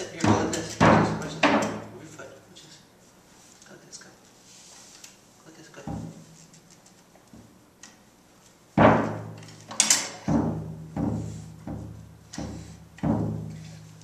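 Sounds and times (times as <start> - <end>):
drum kit hits: 8.8 - 9.4, 10.2 - 13.7.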